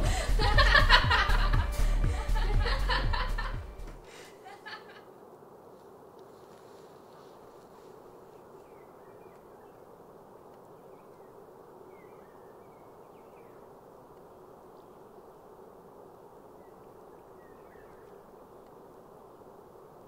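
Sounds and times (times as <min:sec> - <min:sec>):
constant low hum: 0:00.0 - 0:20.0
faint chirps: 0:07.1 - 0:19.7.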